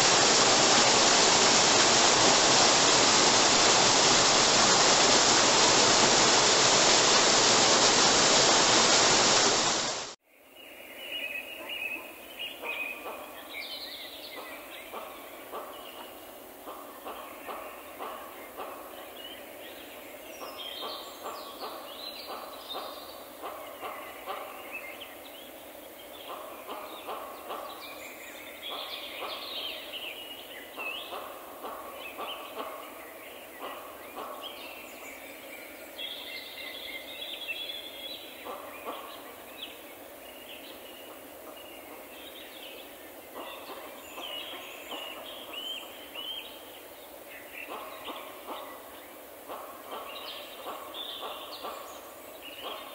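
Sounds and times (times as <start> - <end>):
steady hiss: 0.0 - 10.2, 24.7 - 52.9
birds singing and calling: 32.0 - 52.9.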